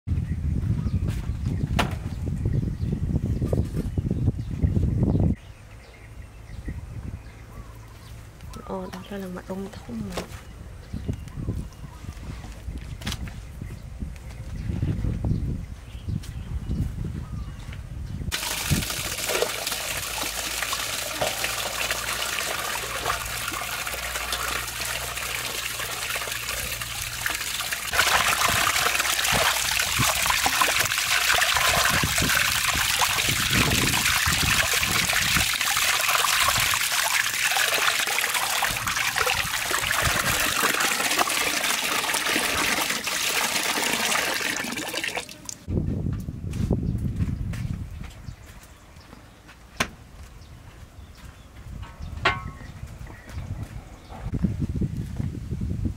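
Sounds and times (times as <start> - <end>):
hands washing meat under water: 18.3 - 45.6
water pouring into steel basin: 18.3 - 45.7.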